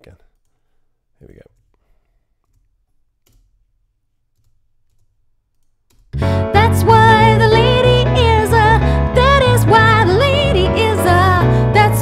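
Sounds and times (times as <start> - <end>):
woman singing: 6.2 - 12.0.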